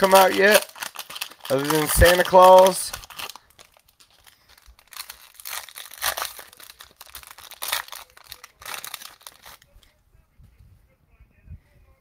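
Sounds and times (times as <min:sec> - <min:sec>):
plastic wrappers crinkling and tearing: 0:00.0 - 0:09.9.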